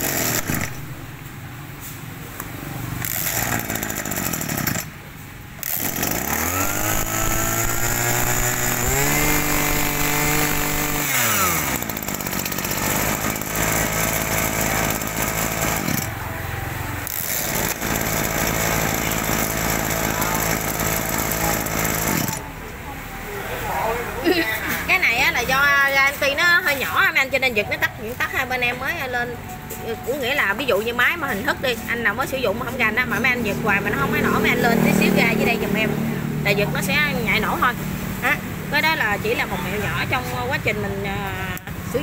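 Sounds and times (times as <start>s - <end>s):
brush cutter engine revving: 0.0s - 1.1s, 2.9s - 5.0s, 5.6s - 16.2s, 17.0s - 22.6s.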